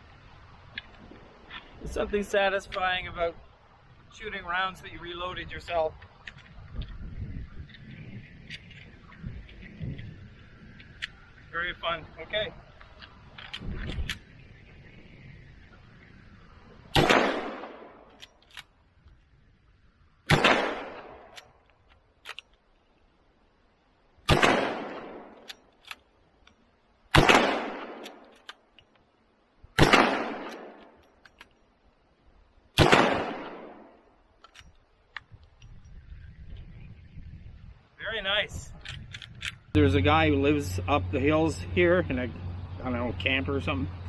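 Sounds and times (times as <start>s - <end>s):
rifle shots echoing: 16.9s - 18.2s, 20.3s - 21.4s, 24.3s - 25.5s, 27.1s - 28.3s, 29.8s - 31.0s, 32.8s - 34.0s.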